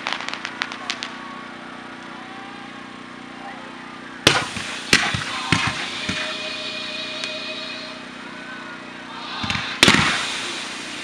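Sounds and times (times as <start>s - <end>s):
fireworks hiss: 0.0s - 1.1s, 4.3s - 8.3s, 9.1s - 11.0s
fireworks bangs: 0.0s - 1.3s, 4.2s - 8.3s, 9.0s - 11.0s.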